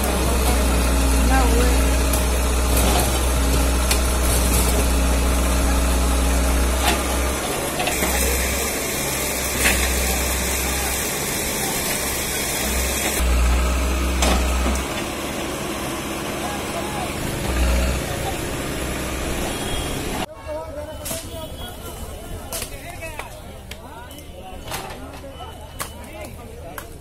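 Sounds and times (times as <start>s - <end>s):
diesel engine running: 0.0s - 20.3s.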